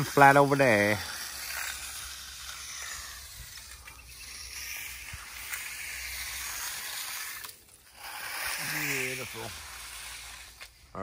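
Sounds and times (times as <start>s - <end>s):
trowel sliding over wet concrete: 0.0s - 11.0s.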